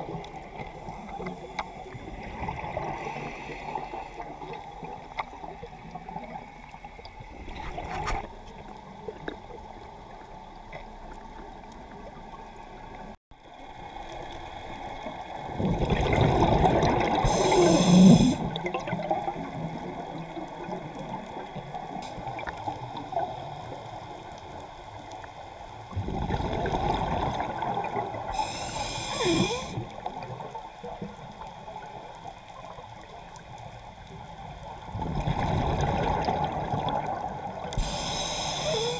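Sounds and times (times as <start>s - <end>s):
underwater breath bubbles: 15.6s - 18.9s, 26.0s - 29.9s, 35.0s - 38.9s.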